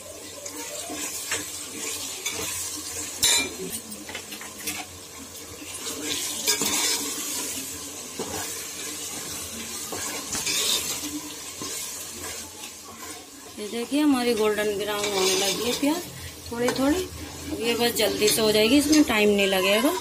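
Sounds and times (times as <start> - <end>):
onions sizzling in oil: 0.0 - 20.0
steel spoon scraping a pot: 6.0 - 7.5, 9.8 - 13.2, 14.3 - 16.0, 17.2 - 19.1.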